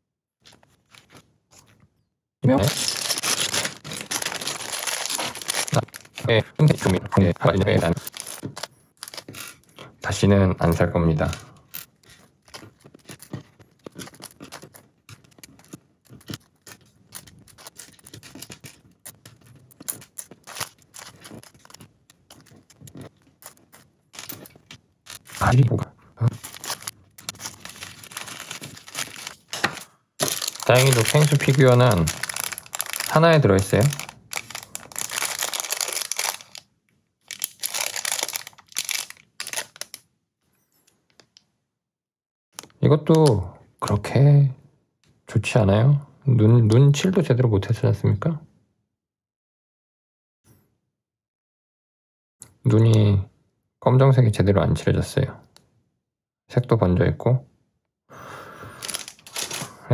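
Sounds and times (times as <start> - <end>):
plastic bags crinkling: 2.4 - 9.7, 10.8 - 36.6, 37.3 - 40.0, 58.8 - 59.9
plastic pieces clicking: 2.6 - 9.7, 11.3 - 25.6, 26.3 - 36.6, 37.3 - 40.0, 58.8 - 59.7.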